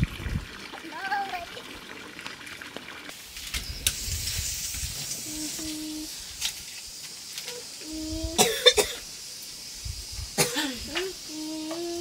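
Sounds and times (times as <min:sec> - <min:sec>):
food sizzling in a pan: 0:03.1 - 0:08.4.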